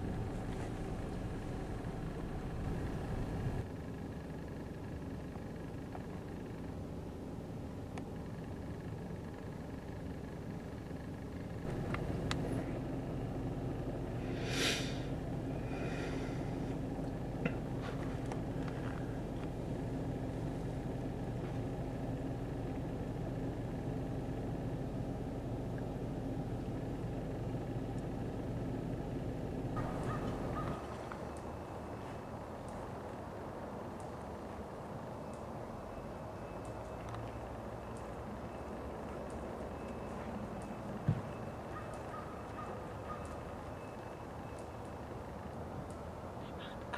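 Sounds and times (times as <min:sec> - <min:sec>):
car engine idling: 0:00.0 - 0:35.0
brief hiss: 0:14.2 - 0:15.1.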